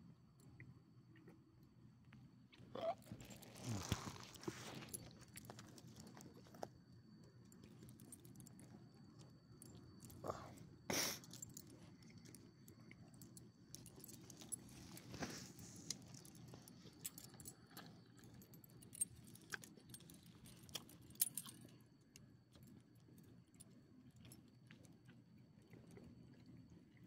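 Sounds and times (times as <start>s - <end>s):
dog collar tags jingling: 16.0s - 21.7s.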